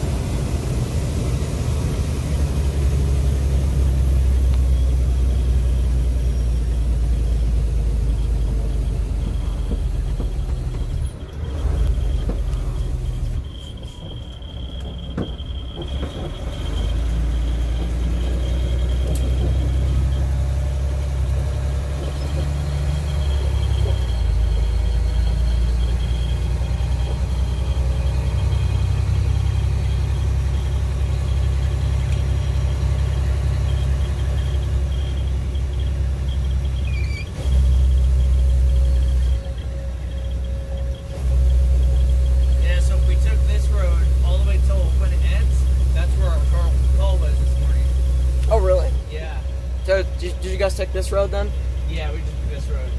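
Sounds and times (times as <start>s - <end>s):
engine and tyres rumbling: 0.0s - 52.9s
faint high whine: 10.8s - 21.2s, 22.0s - 52.9s.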